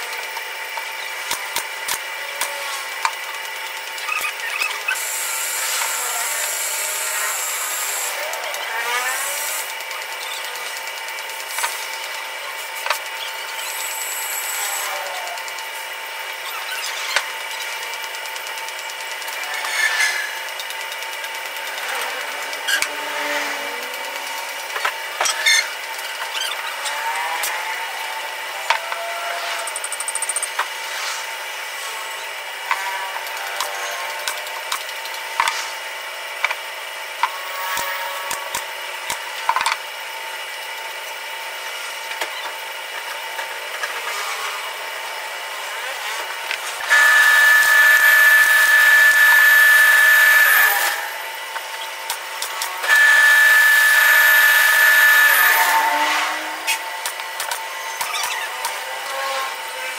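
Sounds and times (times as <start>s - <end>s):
power tool whining: 0.0s - 59.9s
steady machine hum: 0.0s - 59.9s
steady hum: 43.6s - 59.9s.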